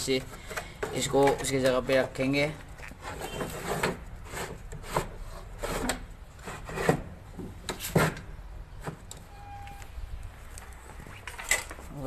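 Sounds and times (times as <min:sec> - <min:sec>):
sheet metal scraping: 0:03.0 - 0:07.1.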